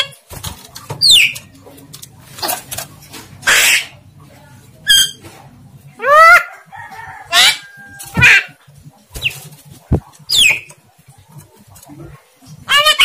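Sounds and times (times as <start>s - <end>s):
myna bird calls: 1.0s - 1.5s, 3.4s - 4.1s, 6.0s - 10.8s
bird harsh squawks: 3.4s - 4.0s, 12.6s - 13.0s.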